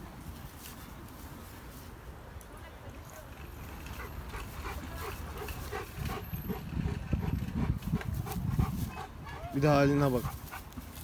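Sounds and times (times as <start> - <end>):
dog panting: 3.9 - 10.8.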